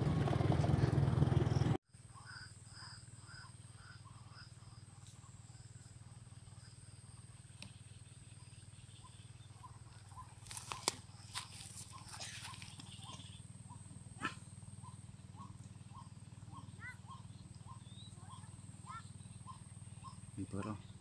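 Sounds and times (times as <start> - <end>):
bird calls from loudspeaker: 11.9 - 13.4, 14.8 - 20.9.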